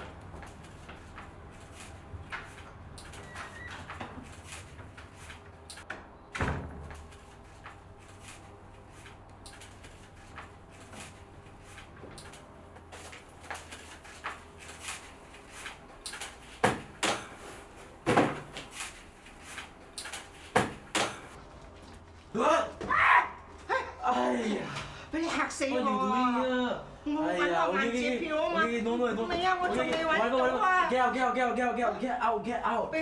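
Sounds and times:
doors and drawers opening and shutting: 2.4s - 7.2s.

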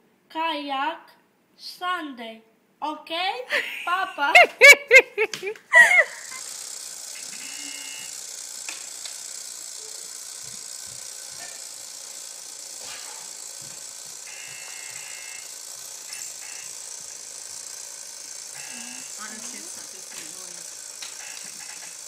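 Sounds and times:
board game buzzer: 5.8s - 22.0s
steady hiss: 6.2s - 22.0s.

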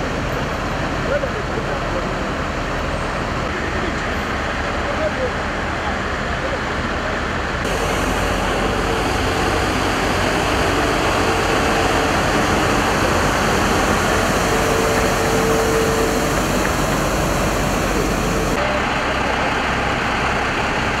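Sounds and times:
road sweeper truck rushing: 0.0s - 21.0s
steady whine: 4.9s - 21.0s.

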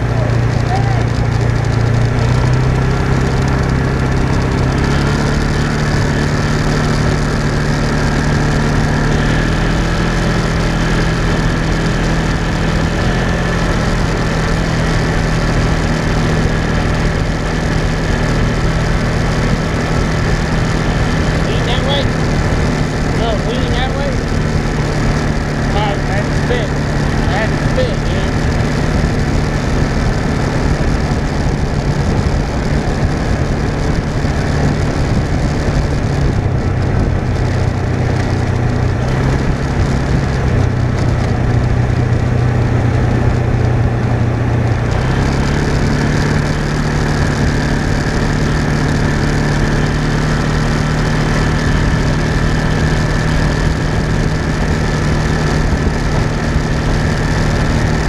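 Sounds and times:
off-road vehicle engine: 0.0s - 58.0s.

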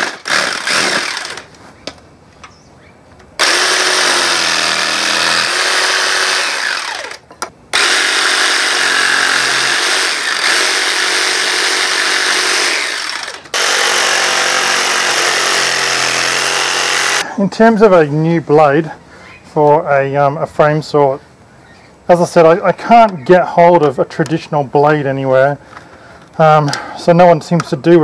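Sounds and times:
jigsaw cutting wood: 0.0s - 1.5s, 3.4s - 17.2s.

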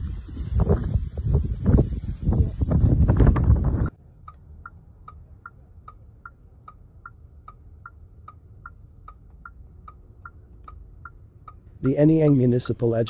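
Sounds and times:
low steady hum: 3.6s - 13.0s
car indicator ticking: 4.2s - 12.4s.

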